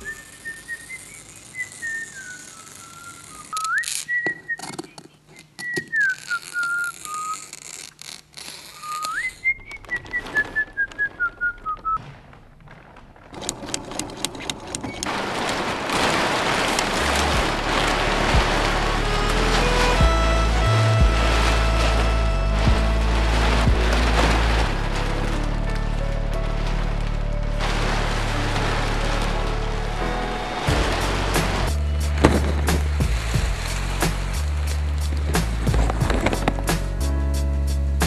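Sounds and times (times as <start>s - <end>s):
person whistling a tune: 0.0s - 4.9s, 5.6s - 7.5s, 8.8s - 12.0s
stiff sail cloth rustling: 6.8s - 37.0s.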